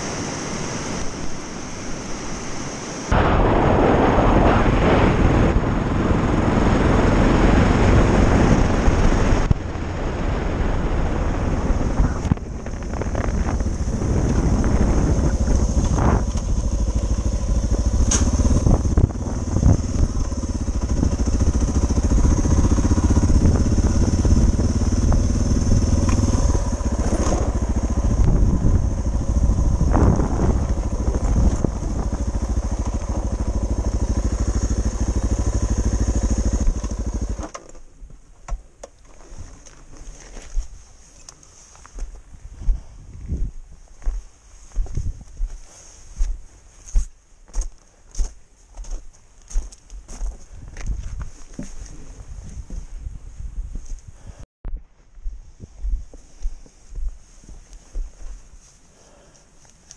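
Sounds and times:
rushing noise: 0.0s - 37.4s
motorcycle engine running: 5.2s - 37.5s.

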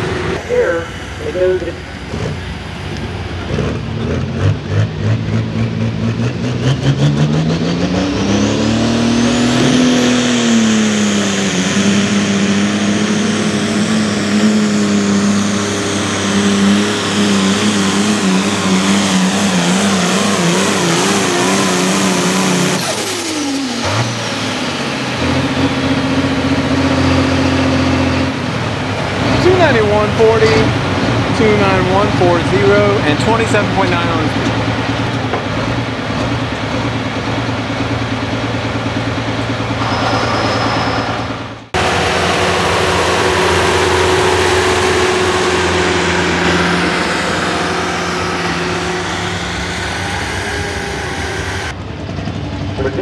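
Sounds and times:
diesel tractor engine at full throttle: 0.0s - 53.0s
high turbo whistle: 39.7s - 51.7s.

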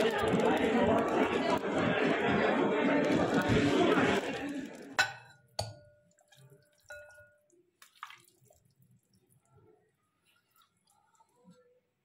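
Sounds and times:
steel bowl clinking on glass: 4.2s - 7.6s.

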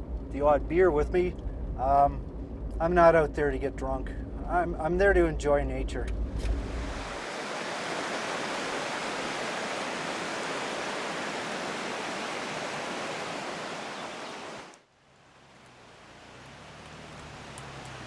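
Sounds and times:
faint outdoor hiss: 0.0s - 18.0s
river rushing: 6.6s - 18.0s.

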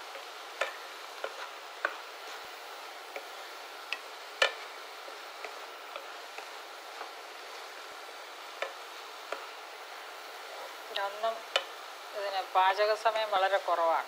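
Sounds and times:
food sizzling: 0.0s - 14.0s
spatula clicking against pan: 0.2s - 2.0s, 3.9s - 4.7s, 8.6s - 9.5s, 11.5s - 11.8s.

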